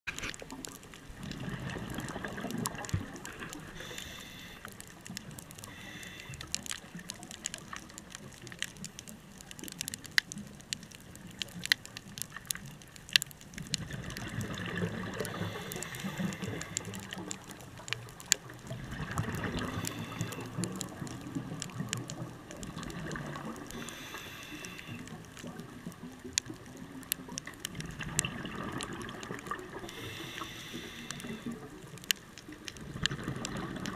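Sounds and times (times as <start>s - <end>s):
exhaled bubbles rumbling: 0.1s - 33.9s
diver breathing through regulator: 3.7s - 4.8s, 5.6s - 6.7s, 15.2s - 17.3s, 19.4s - 20.7s, 23.7s - 25.1s, 29.8s - 31.6s.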